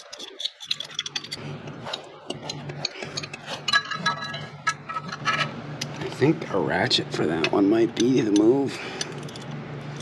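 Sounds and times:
metallic rings: 3.2 - 5.5.

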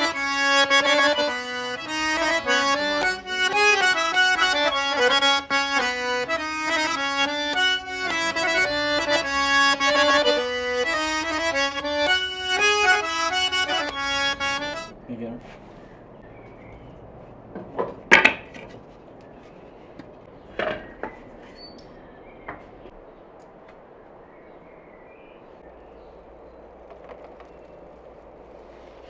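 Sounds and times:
accordion melody: 0.0 - 15.0.

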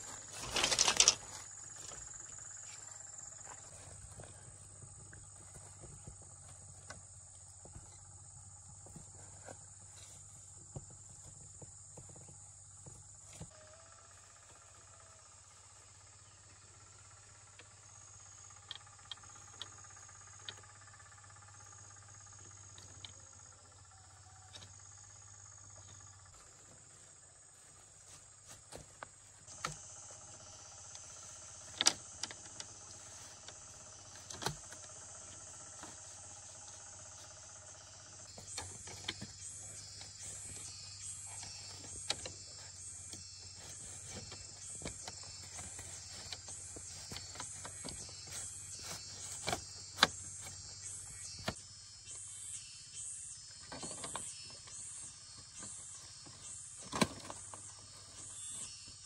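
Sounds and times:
faint steady whine: 0.0 - 59.0
insects chirping: 0.0 - 59.0.

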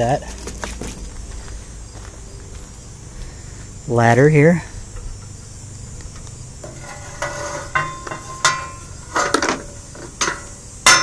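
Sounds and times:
metal ladder clinking and knocking: 6.6 - 11.0.

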